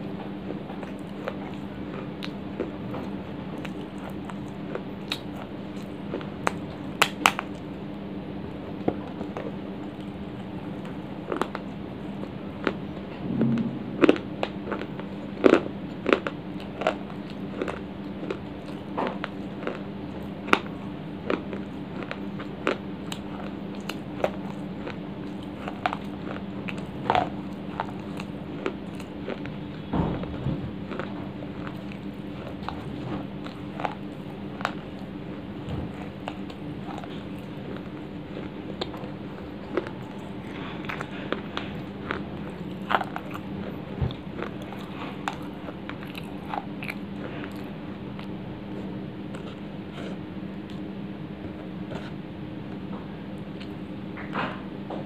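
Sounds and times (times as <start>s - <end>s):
chewing dry clay crunches: 0.1s - 12.9s, 14.7s - 54.4s
low hum: 13.1s - 15.9s.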